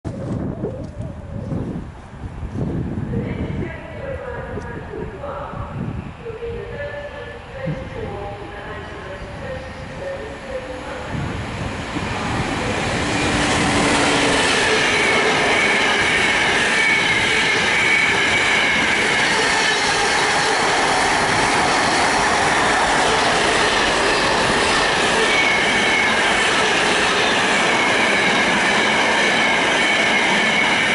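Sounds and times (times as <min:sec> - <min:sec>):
high wheel squeal: 0:23.0 - 0:30.9.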